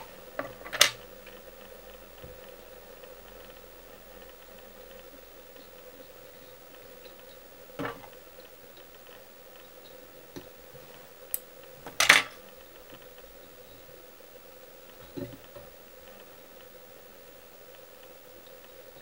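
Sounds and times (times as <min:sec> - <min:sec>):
faint steady hum: 0:00.0 - 0:19.0
tool clicks and knocks: 0:00.4 - 0:01.0, 0:11.9 - 0:12.4.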